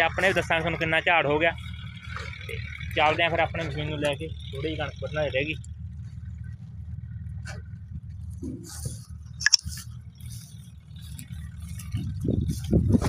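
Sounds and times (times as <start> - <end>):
low steady rumble: 0.0 - 13.0
crunching on dry stubble: 7.4 - 13.0
sharp click: 9.4 - 9.7.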